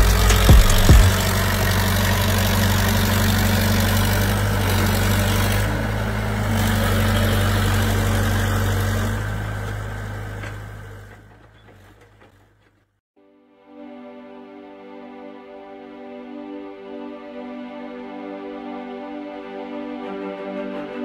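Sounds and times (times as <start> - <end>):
sharp knocks: 0.0 - 1.2
excavator diesel engine running: 0.0 - 12.8.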